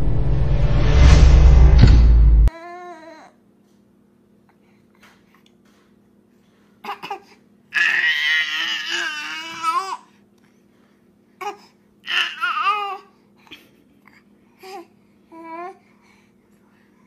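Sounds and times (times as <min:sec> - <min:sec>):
baby wailing: 0:02.5 - 0:03.4, 0:06.9 - 0:10.1, 0:11.4 - 0:13.1
baby whimpering: 0:06.8 - 0:10.1, 0:11.4 - 0:13.2, 0:14.6 - 0:15.8.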